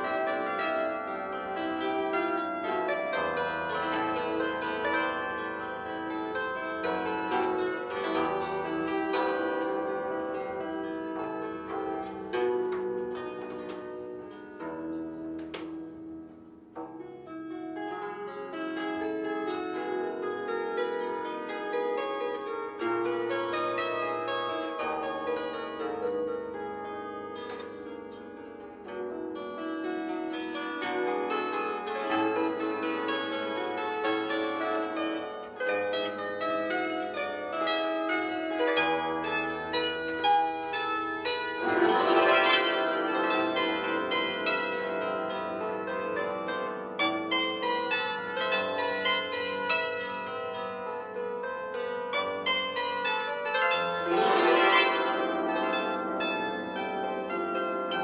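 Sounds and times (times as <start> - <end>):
bandura plucked melody: 0.0 - 58.0.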